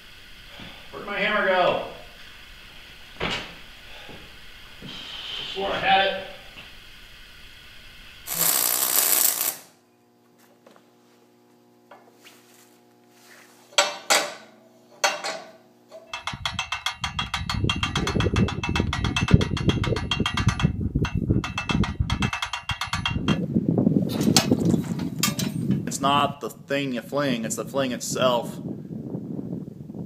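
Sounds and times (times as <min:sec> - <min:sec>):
sharp metal knocks: 0:13.8 - 0:23.4, 0:24.1 - 0:25.9
ratchet winch pawl clicking: 0:16.0 - 0:23.4.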